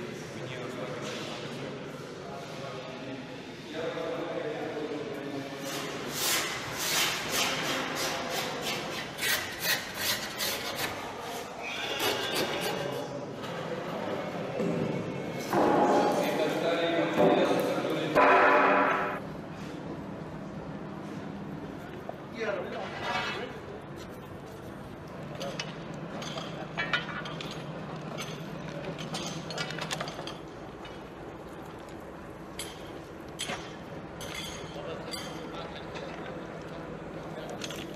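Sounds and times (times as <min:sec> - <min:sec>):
metal tools clinking on rails: 0:25.2 - 0:36.7, 0:37.4 - 0:37.9.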